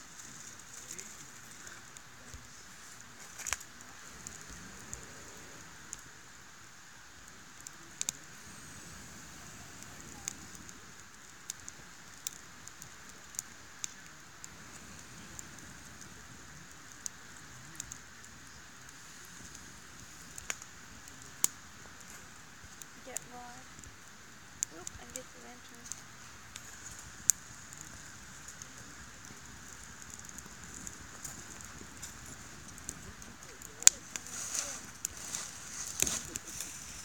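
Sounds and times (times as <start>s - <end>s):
campfire crackling: 0.0s - 37.0s
fire hissing: 0.0s - 37.0s.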